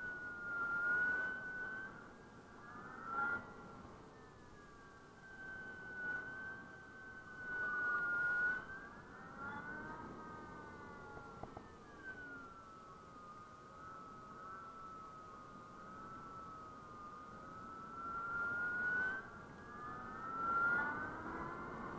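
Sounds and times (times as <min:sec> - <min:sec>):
electric motor whining: 0:00.0 - 0:21.9.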